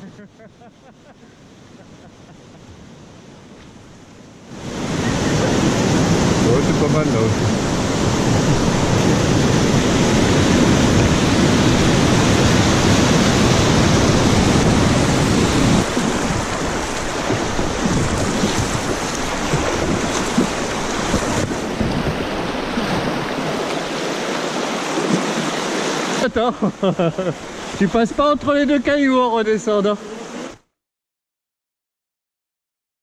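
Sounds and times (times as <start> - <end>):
river pouring over a weir: 2.8 - 30.5
river rapids rushing: 4.5 - 30.6.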